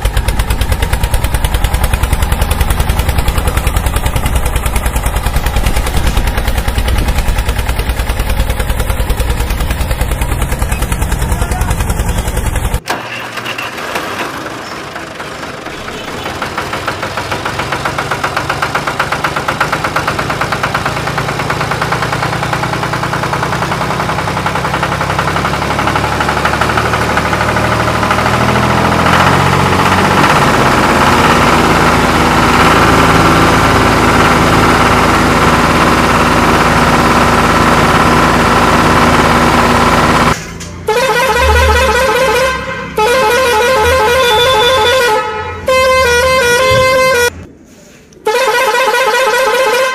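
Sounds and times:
tractor engine running: 0:00.0 - 0:49.9
vehicle horn pulsing blasts: 0:15.7 - 0:16.5, 0:40.8 - 0:47.5, 0:48.2 - 0:49.9.

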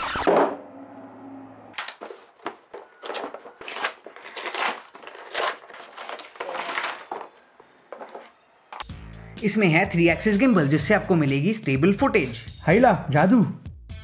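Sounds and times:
paper wrapping tearing and crinkling: 0:01.8 - 0:07.4.

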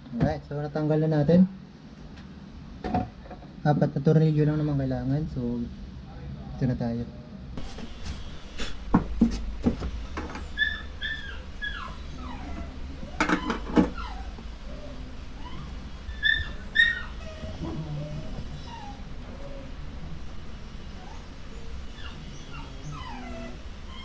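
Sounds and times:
animal chirping calls: 0:10.4 - 0:19.8.

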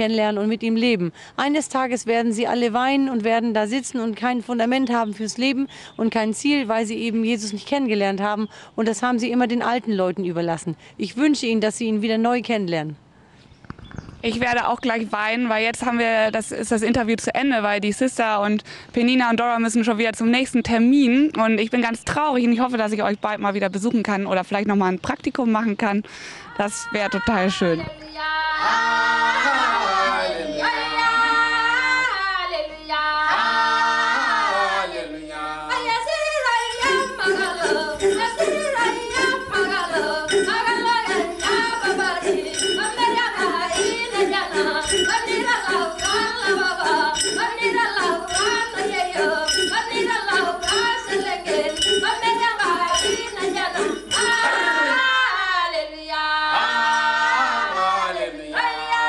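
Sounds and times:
group singing a cappella: 0:28.0 - 0:59.0.

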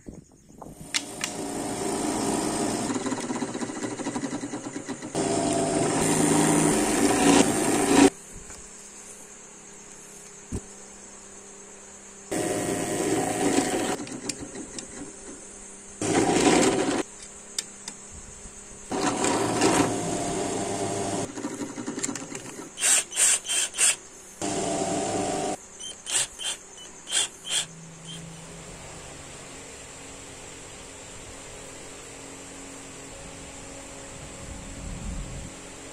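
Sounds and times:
drill press boring wood: 0:00.9 - 0:08.1, 0:12.3 - 0:15.0, 0:16.0 - 0:17.0, 0:18.9 - 0:22.2, 0:22.8 - 0:27.7
power tools cutting wood: 0:01.0 - 0:03.7, 0:05.1 - 0:08.1, 0:12.3 - 0:14.0, 0:16.0 - 0:17.1, 0:18.9 - 0:21.3, 0:22.8 - 0:27.7.

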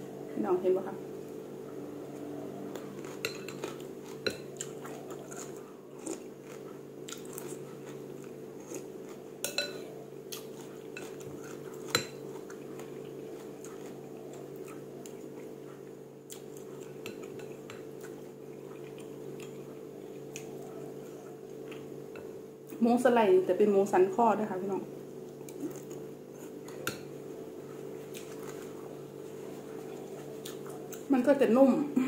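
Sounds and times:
steady low hum: 0:00.0 - 0:32.0
spoon and chopsticks clinking bowl: 0:09.4 - 0:09.8.

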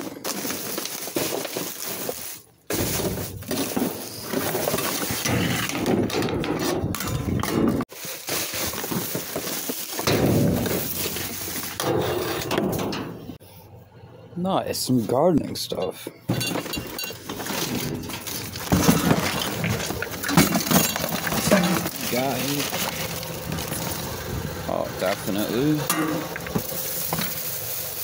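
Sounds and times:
plastic trash bags rustling: 0:00.0 - 0:13.4, 0:16.3 - 0:28.0
knocks and clinks of hard items: 0:16.3 - 0:23.8.

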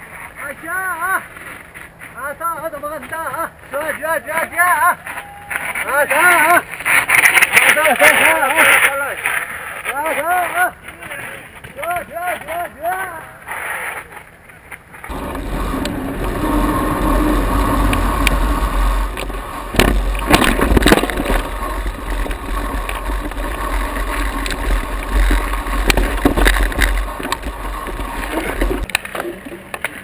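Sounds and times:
bike rattling over rocky ground: 0:05.0 - 0:12.6, 0:14.2 - 0:30.0
wind rumble on microphone: 0:15.1 - 0:28.9.

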